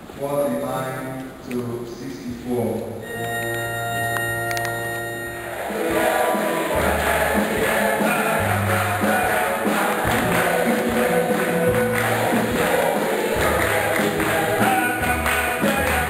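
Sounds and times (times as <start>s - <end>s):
bass line: 3.0s - 16.0s
gospel choir singing: 4.8s - 16.0s.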